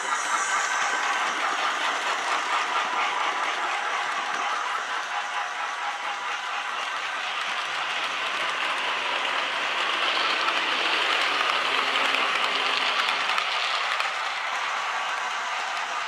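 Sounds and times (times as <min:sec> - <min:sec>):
model train wheels rattling on rail: 0:00.0 - 0:16.0.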